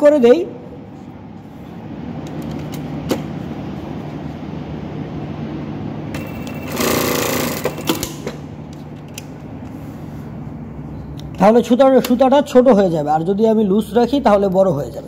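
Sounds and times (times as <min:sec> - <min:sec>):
sewing machine stitching: 0:06.2 - 0:08.1.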